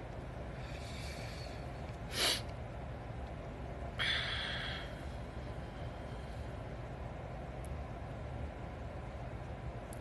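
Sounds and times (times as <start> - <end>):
low background hum: 0.0 - 10.0
hissing breath-like noise: 4.0 - 5.2.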